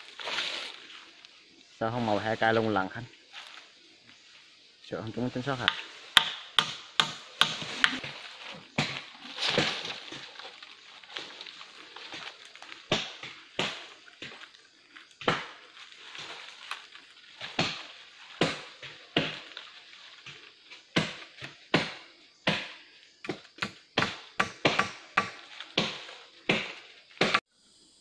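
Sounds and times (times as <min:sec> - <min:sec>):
chopping strikes on wood poles: 0:05.6 - 0:10.5, 0:12.0 - 0:14.5, 0:15.2 - 0:16.8, 0:17.4 - 0:19.6, 0:20.2 - 0:27.4.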